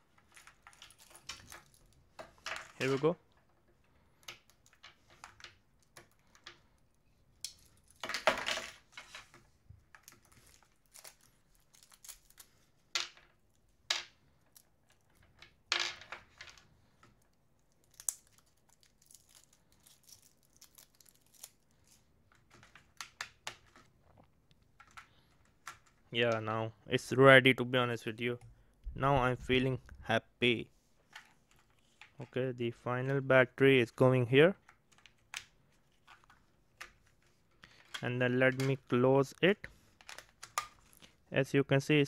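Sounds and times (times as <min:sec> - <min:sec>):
plastic wrapping crinkling and tearing: 0:10.0 - 0:12.7, 0:17.6 - 0:22.0.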